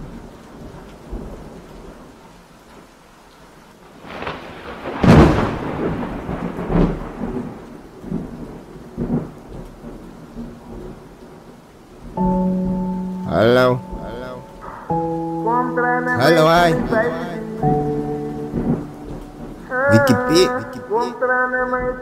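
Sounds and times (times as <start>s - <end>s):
steady rain: 0.0s - 22.0s
thunder rumbling: 3.9s - 11.0s, 16.4s - 19.9s
thunderclap: 4.0s - 11.0s.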